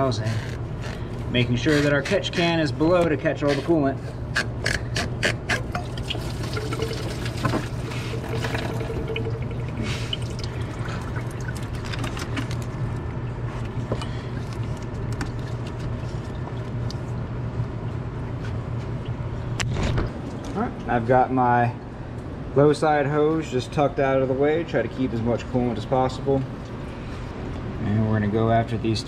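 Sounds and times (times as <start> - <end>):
coolant pouring into can: 5.6 - 12.7.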